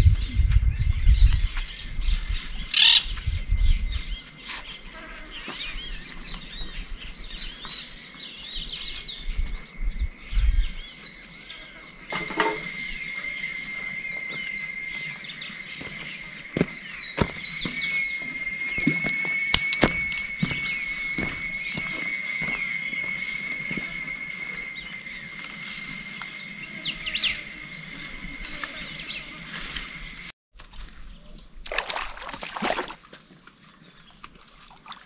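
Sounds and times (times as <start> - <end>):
wind rumble on microphone: 0.0 - 4.3, 8.5 - 11.2
wild birds chirping and calling: 1.3 - 18.9, 20.4 - 30.3
steady high thin tone: 17.5 - 29.6.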